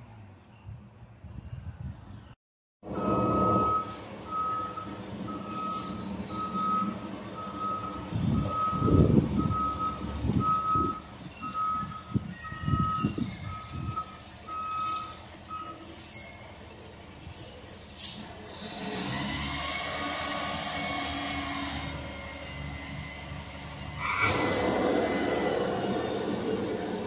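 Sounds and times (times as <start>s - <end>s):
truck backup alarm beeping: 2.8s - 16.7s
diesel engine pulling: 2.8s - 27.0s
air brakes hissing: 5.5s - 6.2s, 15.8s - 16.6s, 17.2s - 19.0s, 23.6s - 27.0s.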